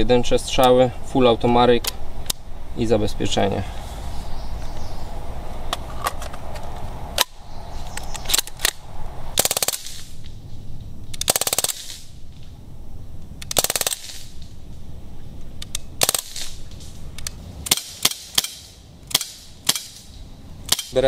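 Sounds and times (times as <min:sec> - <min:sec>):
bb rifle automatic bursts: 0:09.4 - 0:10.1, 0:11.2 - 0:12.1, 0:13.5 - 0:14.4, 0:16.0 - 0:16.6
rifle handling clicks: 0:15.5 - 0:21.0.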